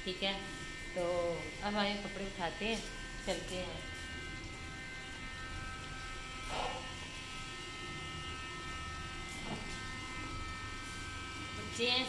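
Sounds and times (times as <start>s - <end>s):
electrical buzz with whine and hum: 0.0s - 12.0s.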